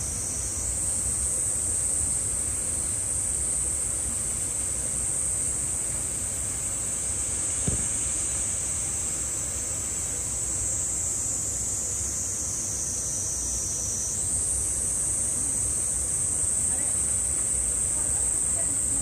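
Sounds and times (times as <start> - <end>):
cicadas singing: 0.0 - 19.0
brief low thump: 7.6 - 8.0.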